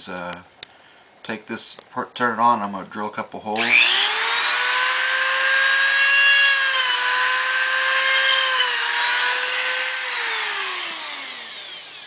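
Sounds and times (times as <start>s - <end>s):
rotary tool whining: 3.6s - 12.0s.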